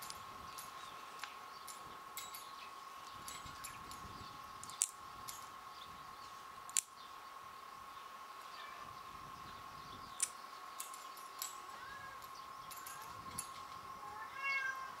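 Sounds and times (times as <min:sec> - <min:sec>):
nail clippers clicking: 0:04.6 - 0:05.4, 0:06.7 - 0:06.9.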